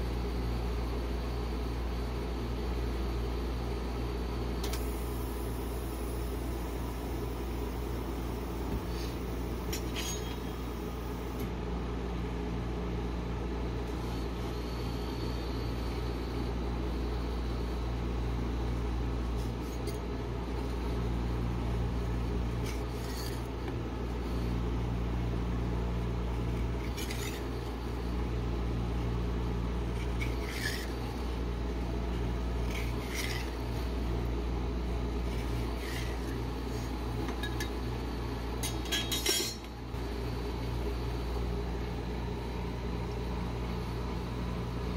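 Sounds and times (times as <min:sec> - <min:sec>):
low machine hum: 0:00.0 - 0:44.9
metal spatula scraping steel plate: 0:09.8 - 0:10.5, 0:26.9 - 0:27.5, 0:30.0 - 0:31.0, 0:32.6 - 0:33.6.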